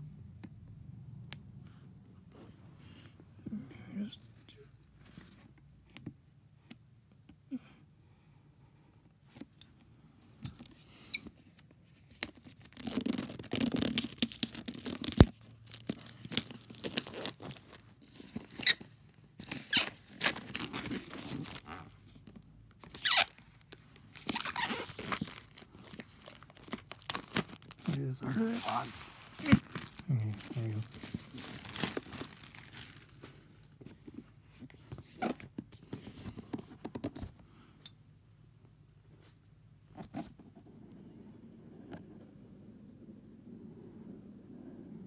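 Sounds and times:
plastic wrap tearing and crinkling: 12.1s - 21.9s, 22.8s - 33.2s.

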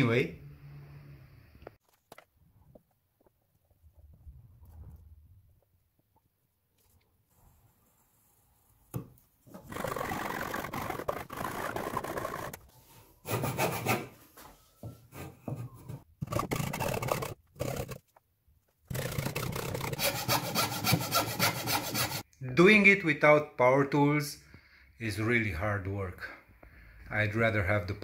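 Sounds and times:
hand saw cutting wood: 9.6s - 12.6s, 13.2s - 14.1s, 16.2s - 18.0s, 18.9s - 22.2s.

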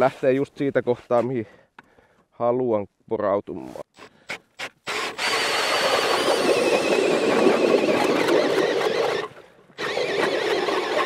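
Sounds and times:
ice auger grinding through ice: 4.6s - 11.0s
drill whining: 4.8s - 11.0s.

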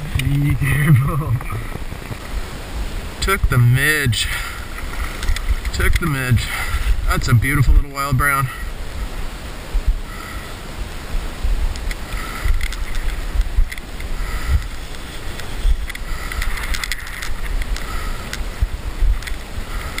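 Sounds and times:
shallow river flowing: 0.0s - 20.0s
wind buffeting microphone: 0.0s - 20.0s
faint clicks and rustles of gear: 4.5s - 7.0s, 11.7s - 20.0s.

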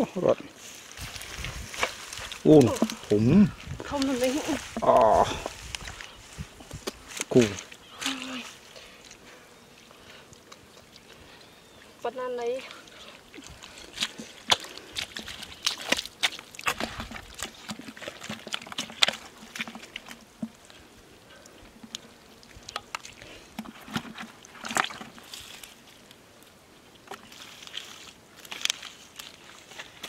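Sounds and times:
shallow water splashing: 7.4s - 26.0s.

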